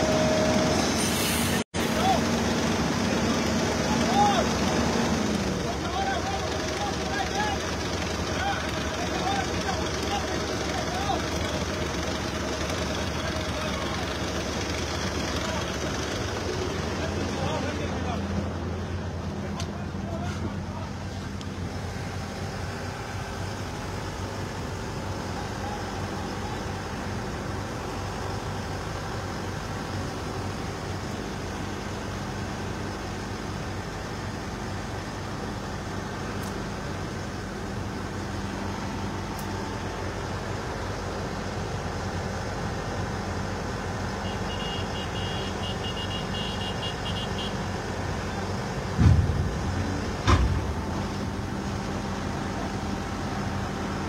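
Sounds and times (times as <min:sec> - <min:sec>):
truck diesel engine running: 0:00.0 - 0:54.0
loud thumps: 0:48.9 - 0:51.0.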